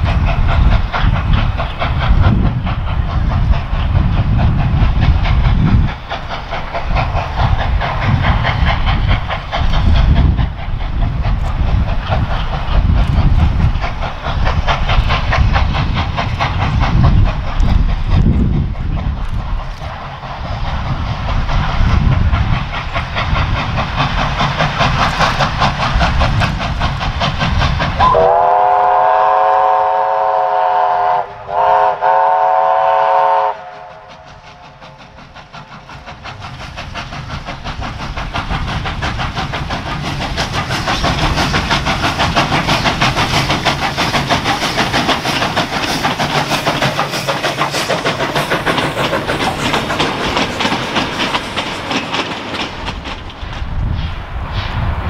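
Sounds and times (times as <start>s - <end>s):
wagons clickety-clack over rail joints: 0.0s - 28.3s, 33.6s - 54.2s
steam locomotive working hard: 0.0s - 55.0s
steam whistle chord: 28.0s - 33.9s.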